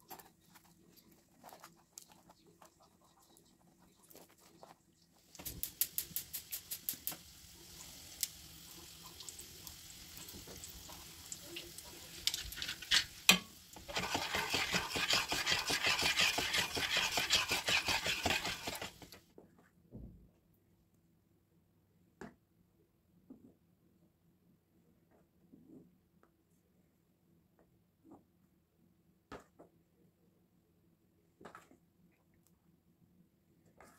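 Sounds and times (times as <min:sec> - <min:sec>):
quick clicking strokes: 0:05.4 - 0:07.2, 0:13.9 - 0:19.1
utensil scraping metal pot: 0:12.1 - 0:19.2.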